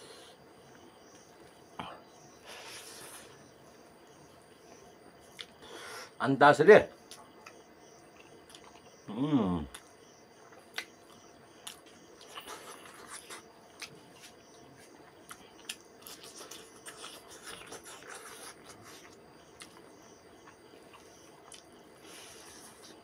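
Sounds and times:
lip smacks: 5.3s - 5.6s, 10.7s - 14.0s
wet chewing: 10.6s - 14.3s, 15.1s - 21.8s.

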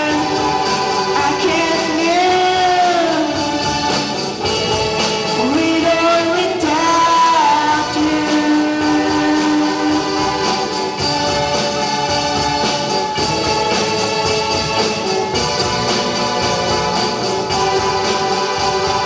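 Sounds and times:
band playing pop-rock song: 0.0s - 19.0s
person singing long notes: 5.4s - 10.5s.

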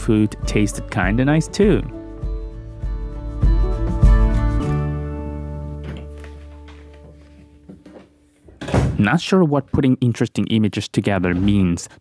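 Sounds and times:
gentle plucked guitar music: 0.0s - 7.5s.

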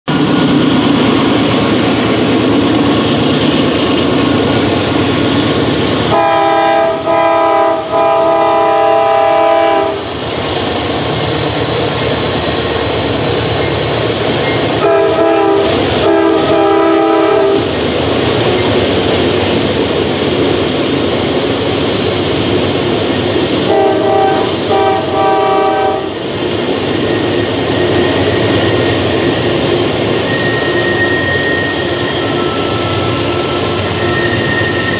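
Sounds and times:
diesel locomotive engines running: 0.1s - 34.9s
train wheels clattering on rails: 0.1s - 34.9s
locomotive horn blasts: 6.1s - 10.1s, 14.8s - 17.7s, 23.7s - 26.2s.

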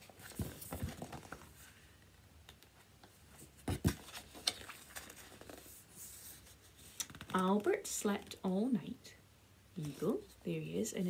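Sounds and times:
paper pages rustling: 3.6s - 7.7s.

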